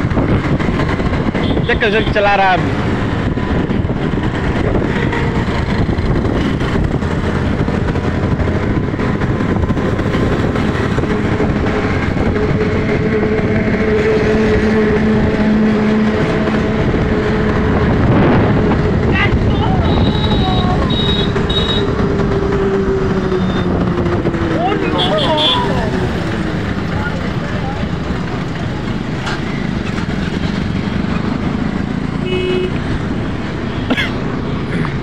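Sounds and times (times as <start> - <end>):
motorcycle engine and road noise: 0.0 - 35.0
passing vehicle hum: 0.0 - 35.0
wind rushing on microphone: 0.0 - 35.0.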